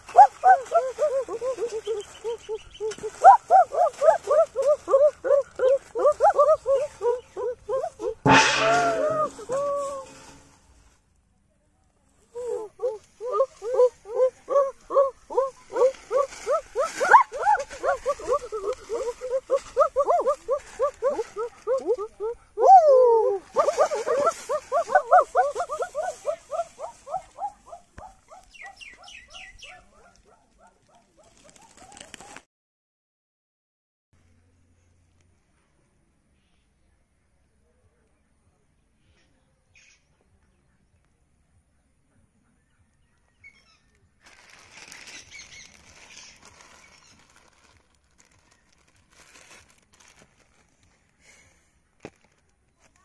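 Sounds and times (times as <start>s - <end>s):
rapid animal calls: 0.0s - 10.3s, 12.4s - 29.8s
plastic bags crinkling: 30.8s - 32.4s, 44.2s - 51.0s, 52.0s - 53.0s.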